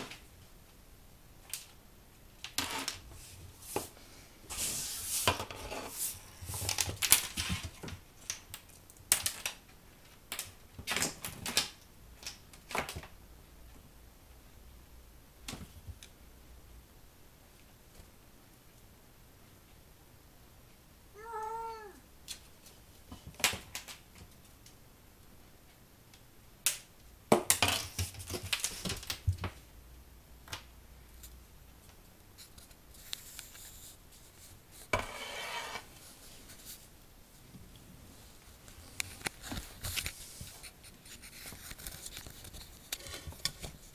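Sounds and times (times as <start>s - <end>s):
kitten meowing: 21.2s - 22.0s.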